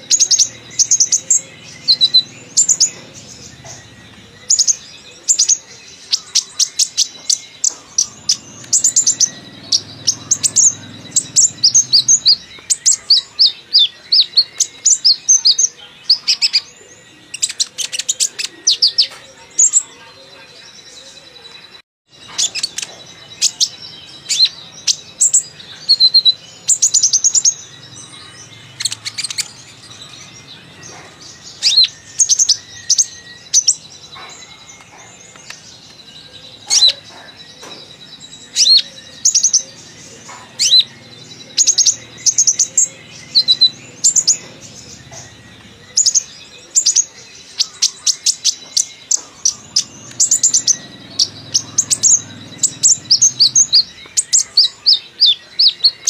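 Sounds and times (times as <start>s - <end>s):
sunbird chirping and trilling: 0.0s - 56.0s.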